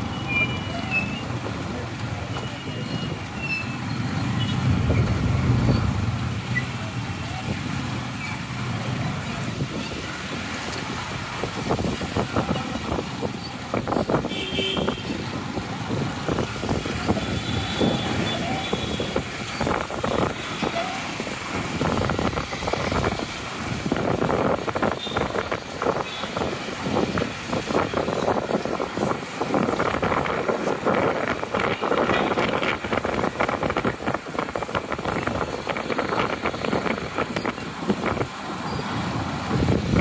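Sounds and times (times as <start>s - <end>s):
road traffic: 0.0s - 40.0s
car running from inside: 4.2s - 7.0s.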